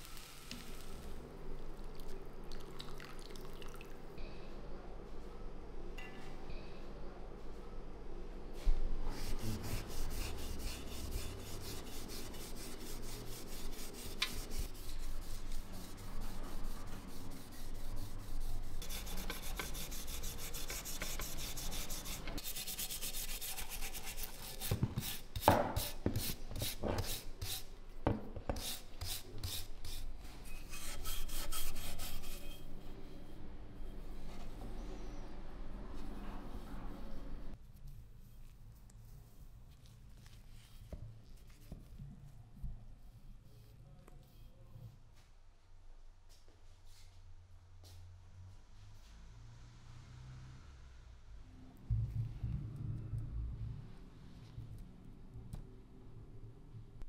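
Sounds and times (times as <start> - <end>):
steel wool scrubbing metal: 9.3 - 24.6.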